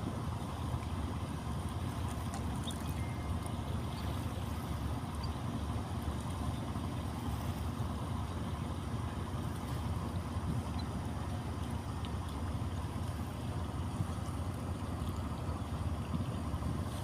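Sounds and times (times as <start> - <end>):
boat engine rumbling: 0.0 - 17.0.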